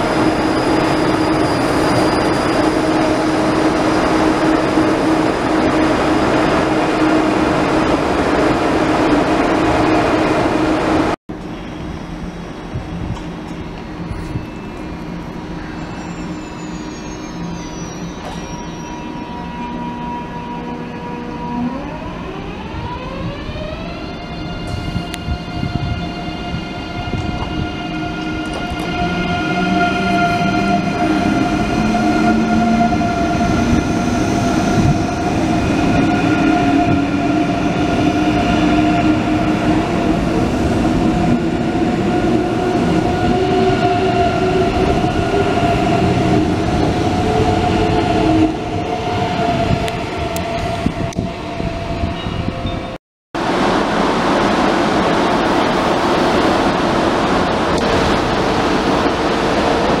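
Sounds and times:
train wheels rushing on rails: 0:53.4 - 1:00.0.

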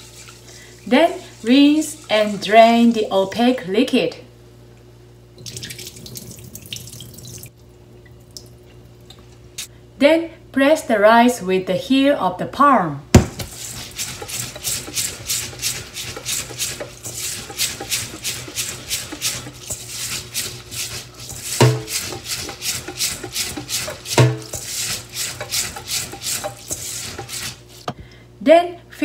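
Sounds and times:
hand washing rice in metal bowl: 0:00.0 - 0:03.6, 0:13.3 - 0:27.9.

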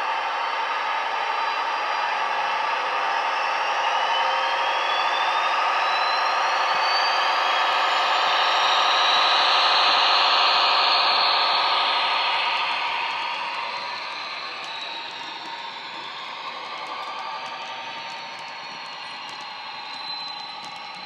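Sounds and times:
model diesel locomotive sound: 0:09.0 - 0:21.0
model train rolling on track: 0:09.4 - 0:21.0.

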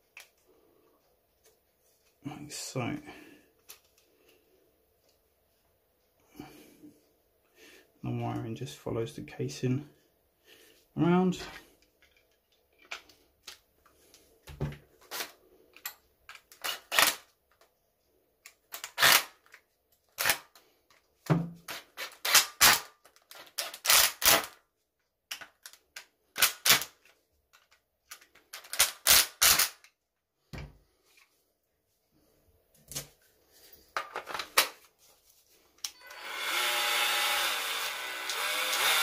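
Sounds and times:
impact driver driving screws: 0:18.8 - 0:19.3, 0:23.6 - 0:24.6, 0:36.0 - 0:39.0.

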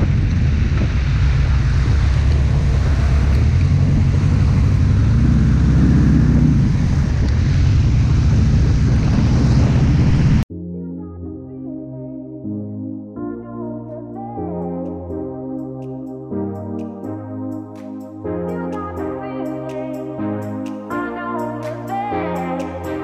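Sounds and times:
wind buffeting microphone: 0:00.0 - 0:10.4
engine low drone: 0:00.0 - 0:10.5.

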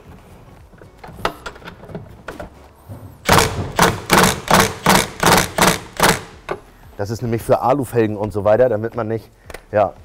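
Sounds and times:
impact wrench hammering: 0:03.2 - 0:06.7.

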